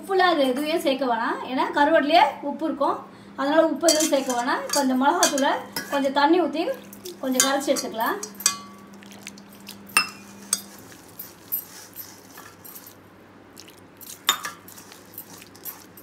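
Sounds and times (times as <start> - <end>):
bangles clinking on steel bowl: 6.9 - 13.0.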